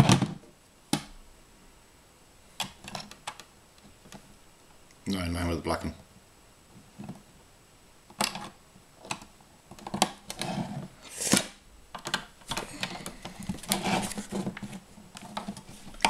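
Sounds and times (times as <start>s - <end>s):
plastic bricks clicking: 11.9s - 14.1s.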